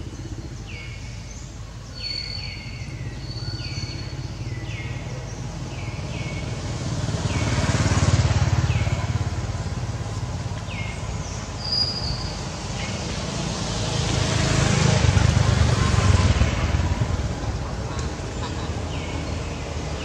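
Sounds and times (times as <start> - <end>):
bird chirping: 0.0 - 13.2
vehicle engine running: 2.7 - 20.0.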